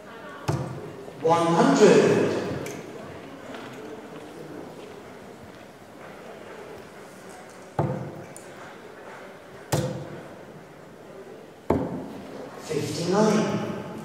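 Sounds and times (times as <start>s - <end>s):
darts striking dartboard: 0.5s - 0.9s, 7.8s - 8.2s, 9.7s - 10.2s, 11.7s - 12.1s.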